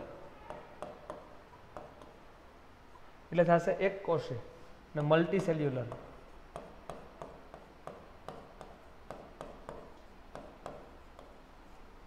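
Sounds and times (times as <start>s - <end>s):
pen stylus tapping on screen: 5.9s - 11.4s.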